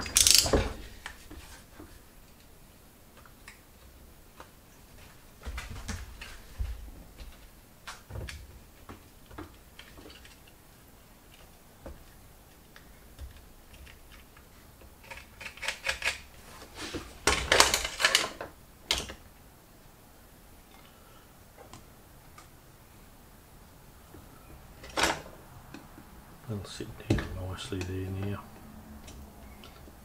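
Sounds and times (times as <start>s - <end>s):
small tools clicking and tapping: 0.0s - 1.2s.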